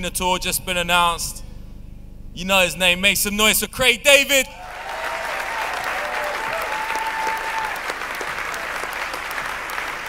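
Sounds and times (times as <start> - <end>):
crowd applauding: 4.6 - 10.0.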